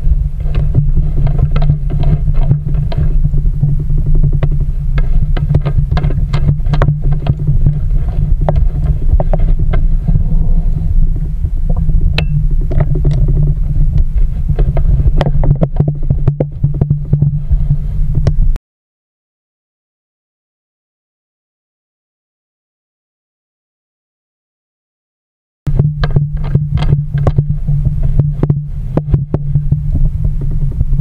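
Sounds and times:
muffled underwater rumble: 0.0 - 18.6, 25.7 - 31.0.

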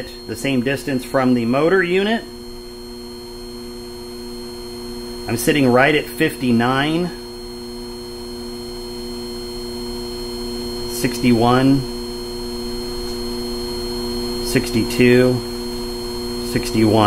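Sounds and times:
man speaking: 0.0 - 2.3, 5.3 - 7.2, 10.9 - 12.0, 14.4 - 15.5, 16.5 - 17.0
electric motor humming: 0.0 - 17.0.

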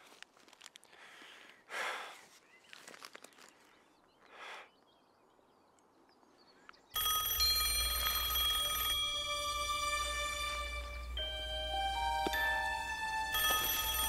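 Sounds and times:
phone ringing: 7.0 - 14.0.

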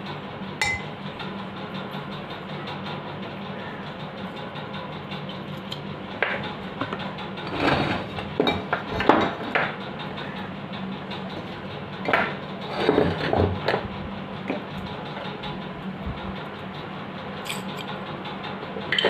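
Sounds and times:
metal parts knocking and clinking: 0.6 - 1.0.

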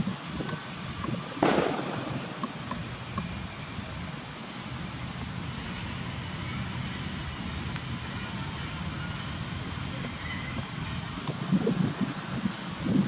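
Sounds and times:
outdoor background noise: 0.0 - 13.0.

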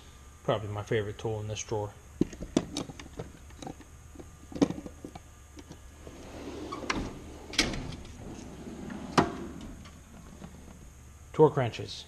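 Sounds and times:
metal drawer sliding shut: 6.0 - 10.8.

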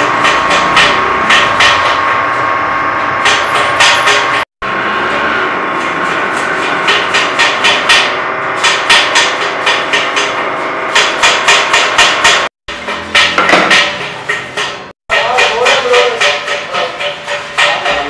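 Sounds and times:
rapid sharp knocks: 6.6 - 18.0.

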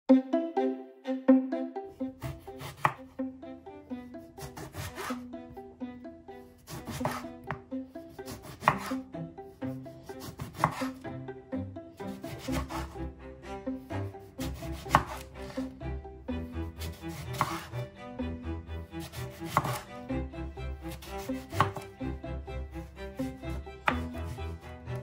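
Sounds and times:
instrumental background music: 0.1 - 25.0
knife slicing onto wooden board: 2.2 - 3.0, 4.4 - 5.2, 6.7 - 7.6, 8.3 - 9.0, 10.2 - 11.0, 12.3 - 13.0, 14.5 - 15.6, 16.8 - 17.7, 19.0 - 19.9, 20.9 - 21.9.

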